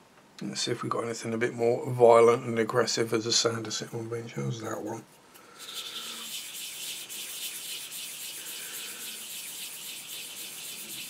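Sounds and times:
sanding stick scraping plastic: 0:05.6 - 0:11.0.

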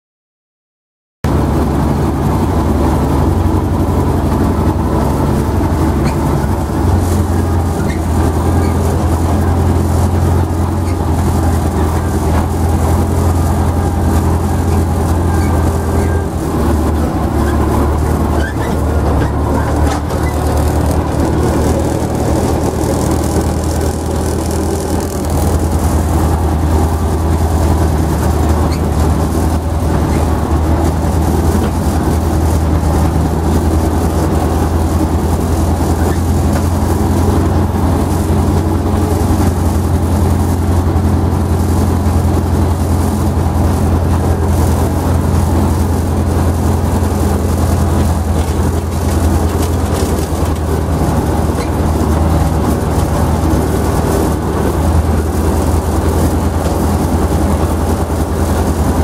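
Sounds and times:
tractor diesel engine running: 0:01.2 - 0:59.0.

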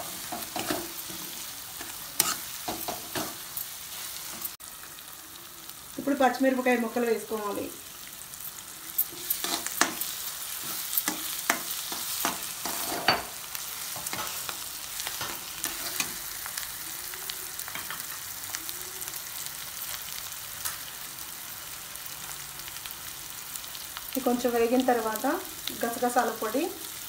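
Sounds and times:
metal spatula scraping a pan: 0:00.0 - 0:04.6, 0:09.0 - 0:16.6
food sizzling in oil: 0:00.0 - 0:27.0.

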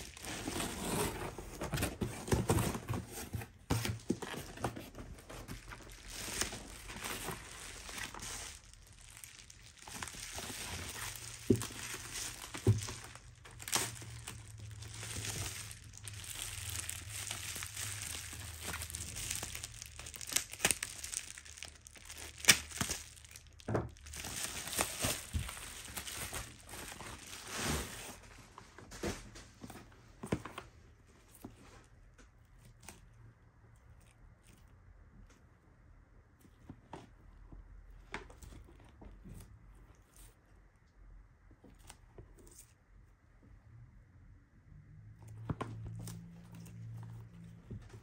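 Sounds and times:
bubble wrap crinkling: 0:00.0 - 0:33.2, 0:45.2 - 0:48.0
bubble wrap snaps: 0:05.6 - 0:27.6.

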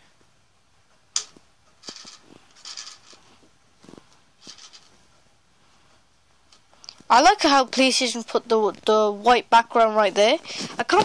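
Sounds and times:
hand rubbing and scratching: 0:01.2 - 0:05.1.

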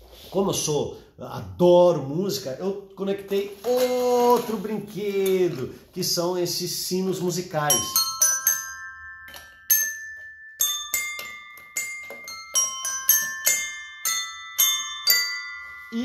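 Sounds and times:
tuned tap bells ringing: 0:07.6 - 0:16.0.

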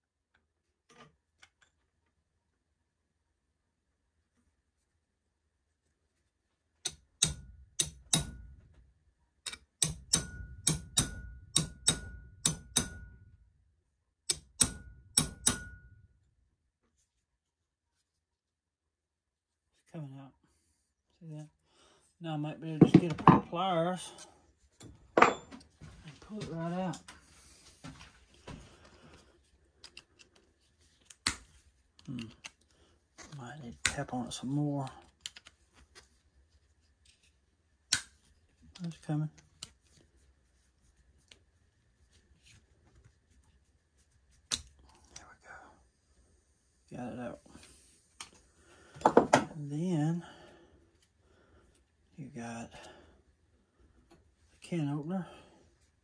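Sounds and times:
hammer tapping steel punch: 0:06.8 - 0:08.5, 0:09.4 - 0:13.3, 0:14.2 - 0:15.9.

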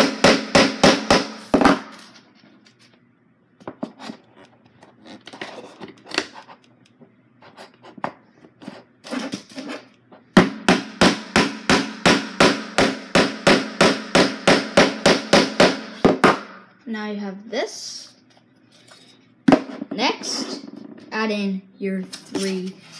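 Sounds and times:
hammer striking nails into wood: 0:00.0 - 0:01.9, 0:10.4 - 0:16.5.

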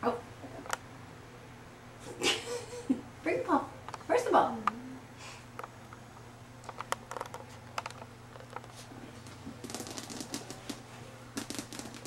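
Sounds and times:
puppy claws clicking on tile: 0:09.6 - 0:10.8, 0:11.4 - 0:12.0.

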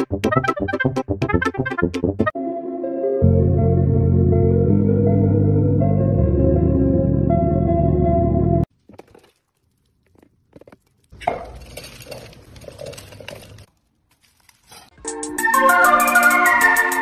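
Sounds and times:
duck bill rattling through kibble: 0:09.0 - 0:15.0.

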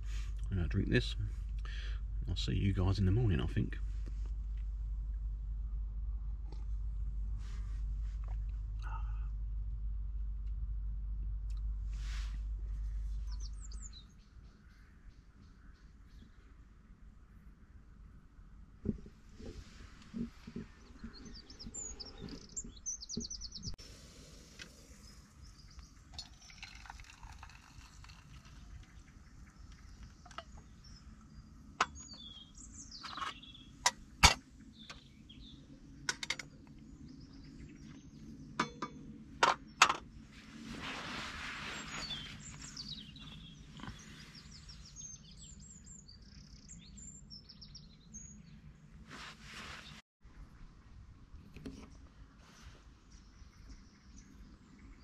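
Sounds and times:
birds chirping: 0:00.0 - 0:03.9, 0:07.5 - 0:09.4, 0:12.0 - 0:16.6, 0:18.8 - 0:48.7.

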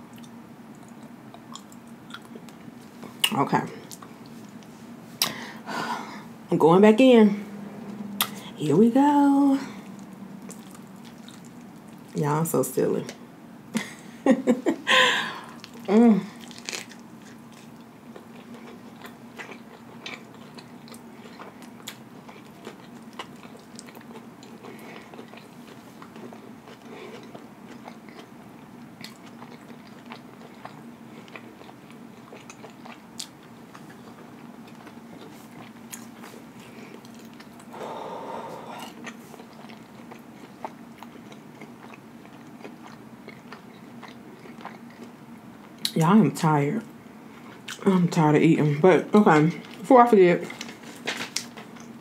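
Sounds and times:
faint steady hum: 0:00.0 - 0:52.0
person chewing with mouth smacks: 0:00.1 - 0:05.4, 0:07.8 - 0:08.6, 0:09.8 - 0:12.2, 0:15.5 - 0:37.7, 0:38.7 - 0:46.0, 0:47.3 - 0:47.9.

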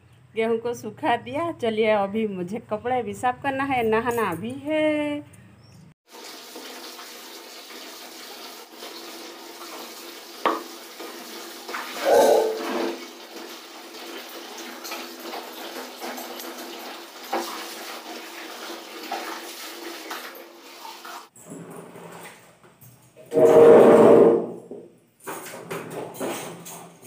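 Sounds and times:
tap water running into bucket: 0:06.1 - 0:21.3.

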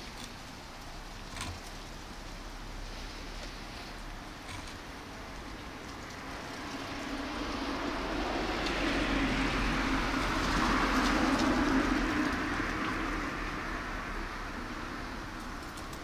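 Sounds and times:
vehicle passing: 0:06.1 - 0:16.0.

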